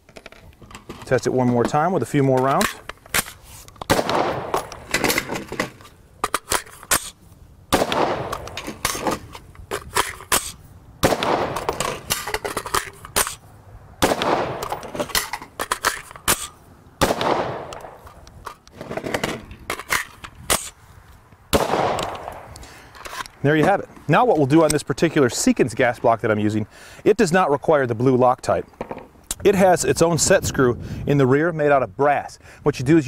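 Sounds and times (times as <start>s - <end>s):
magazine change clicks: 2.6s - 5.0s, 14.0s - 18.8s, 21.6s - 23.3s
rifle shots with echo: 3.9s - 4.9s, 7.7s - 8.9s, 11.0s - 11.8s, 14.0s - 14.7s, 17.0s - 18.0s, 21.5s - 22.5s.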